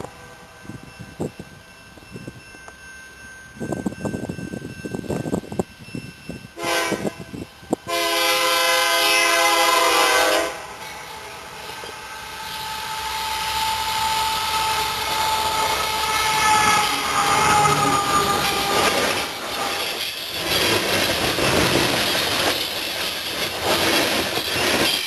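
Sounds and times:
train rumble: 0.0 - 25.0
locomotive air horn: 6.6 - 7.3, 7.9 - 19.6
high squeal: 10.8 - 25.0.

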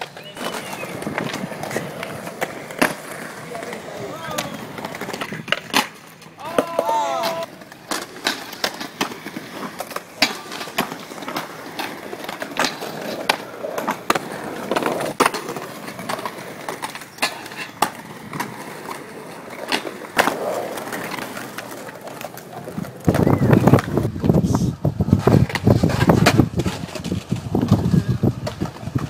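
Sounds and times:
skateboard clacks: 0.0 - 29.0
skateboard wheels rolling on concrete: 0.0 - 29.0.

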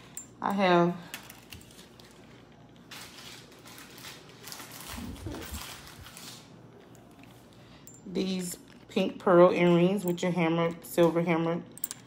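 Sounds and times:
cardboard handling noise: 1.4 - 6.5.

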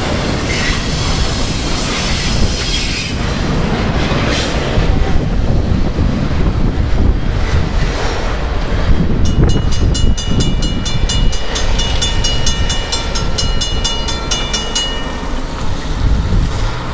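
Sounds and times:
crossing bell ringing rapidly: 9.2 - 16.0.

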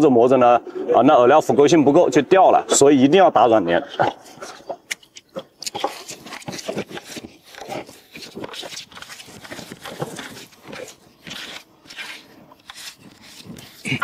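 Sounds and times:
hands kneading crumbly dough: 4.7 - 14.0.

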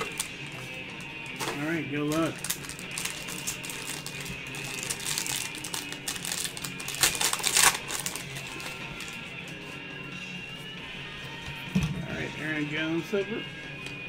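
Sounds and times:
packaging crinkling and tearing: 0.0 - 9.2.

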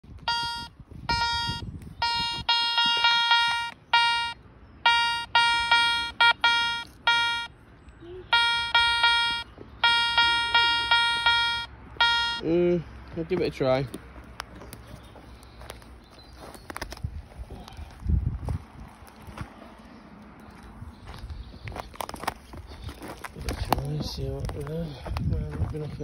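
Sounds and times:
metal detector beeps: 0.1 - 7.6, 8.3 - 12.5.

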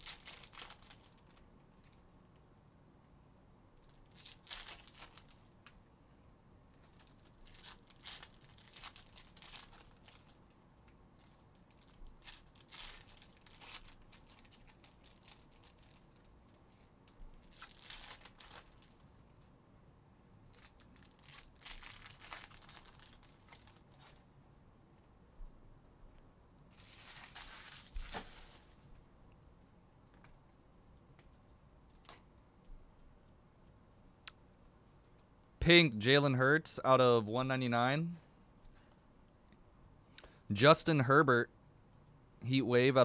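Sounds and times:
foil wrappers tearing and crinkling: 0.0 - 2.0, 3.8 - 5.8, 6.8 - 10.5, 11.2 - 19.4, 20.5 - 24.2, 26.7 - 28.8.

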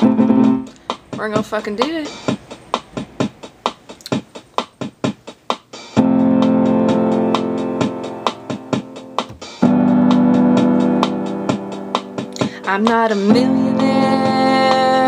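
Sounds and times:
keyboard chords: 0.0 - 0.8, 6.0 - 15.0
ticking beat: 0.0 - 15.0.

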